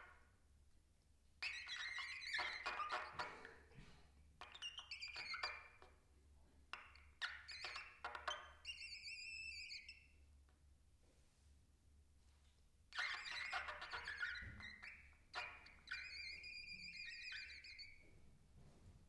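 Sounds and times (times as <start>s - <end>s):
trumpet high wavering squeal: 1.4s - 3.4s, 7.2s - 10.0s, 12.9s - 18.0s
trumpet hissing and squeaking: 13.0s - 18.0s.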